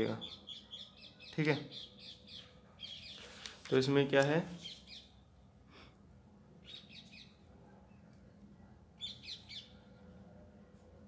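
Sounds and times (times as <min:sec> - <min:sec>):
small bird chirping: 0:00.0 - 0:03.5, 0:04.6 - 0:05.3, 0:06.6 - 0:08.1, 0:09.0 - 0:10.0
low steady hum: 0:05.0 - 0:11.0.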